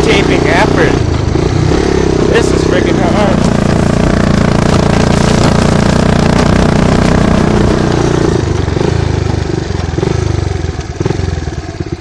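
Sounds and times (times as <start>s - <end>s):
engine running under load: 0.0s - 12.0s
logs dragging over gravel: 2.3s - 8.8s.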